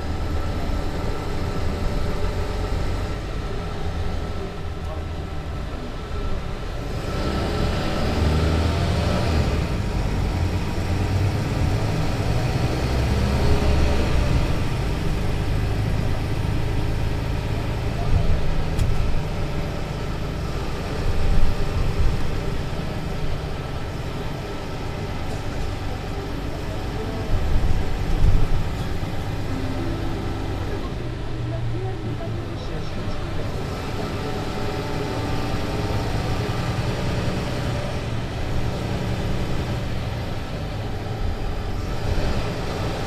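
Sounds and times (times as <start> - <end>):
bus diesel engine running: 0.0 - 43.0.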